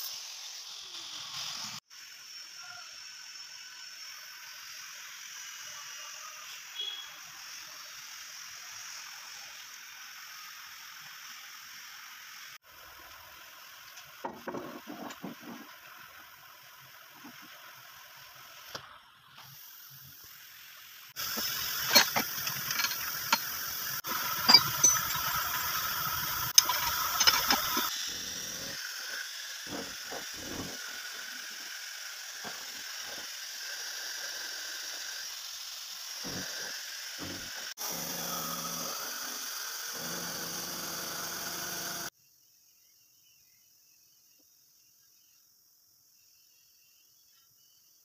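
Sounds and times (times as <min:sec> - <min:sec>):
face mill cutting steel: 0:21.1 - 0:42.1.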